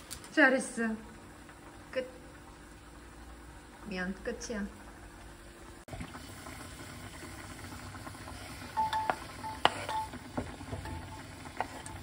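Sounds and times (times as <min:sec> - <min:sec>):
water boiling in a pot: 0:00.0 - 0:12.0.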